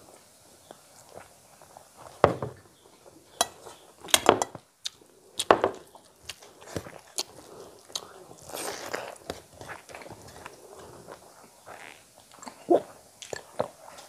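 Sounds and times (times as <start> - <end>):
person chewing with lip smacks: 4.8 - 13.7.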